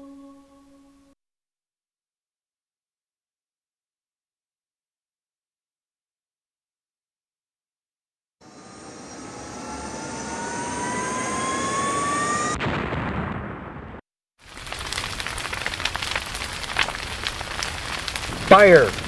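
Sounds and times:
jet aircraft whine rising: 8.4s - 12.6s
explosion: 12.3s - 19.0s
fire crackling with pops: 14.4s - 19.0s.

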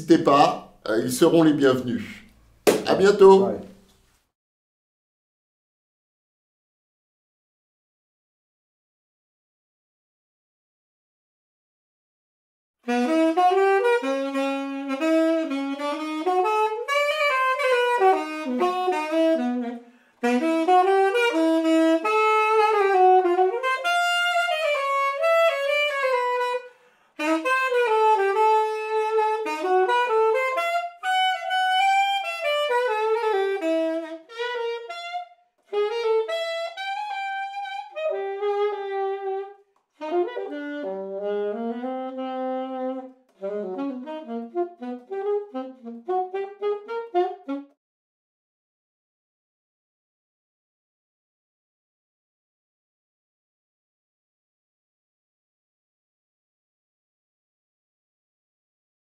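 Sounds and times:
solo saxophone playing jazz: 2.9s - 3.9s, 12.8s - 47.8s.

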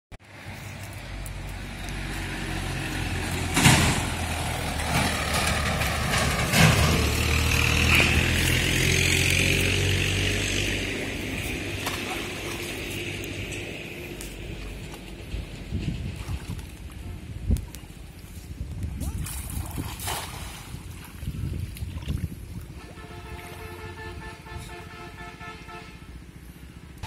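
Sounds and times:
tractor engine passing: 0.3s - 16.4s.

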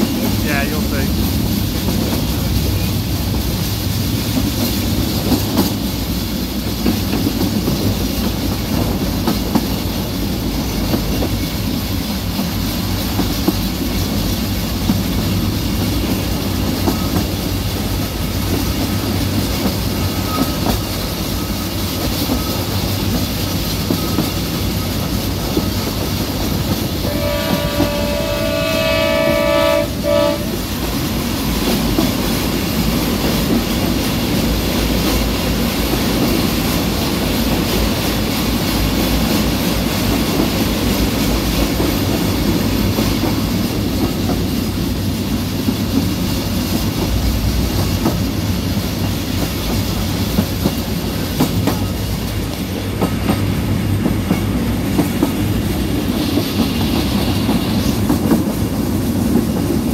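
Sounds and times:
train wheels clattering on track: 0.0s - 59.9s
locomotive horn blast: 27.0s - 30.6s.

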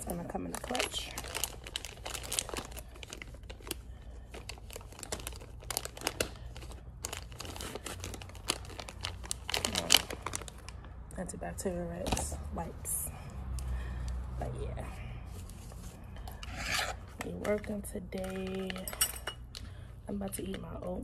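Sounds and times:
plastic tearing: 0.0s - 10.8s
plastic packaging crinkling: 0.0s - 11.3s.

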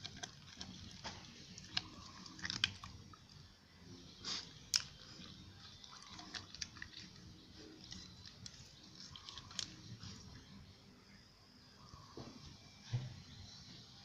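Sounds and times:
dog chewing plastic wrapper: 0.0s - 3.2s, 4.6s - 10.5s.

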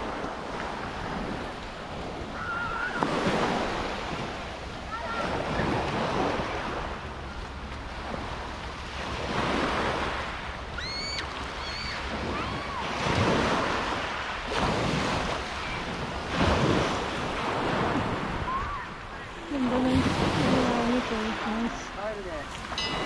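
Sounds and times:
waves washing onto pebbles: 7.6s - 23.0s
high whistled bird calls: 10.8s - 12.0s.

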